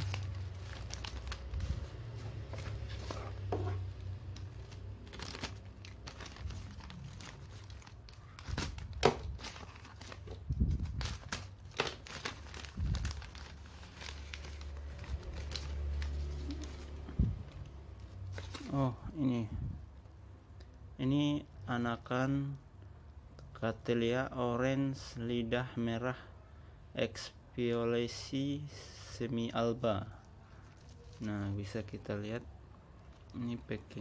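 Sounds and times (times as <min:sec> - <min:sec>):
paper crinkling and rustling: 0:00.0 - 0:18.9, 0:30.6 - 0:31.8.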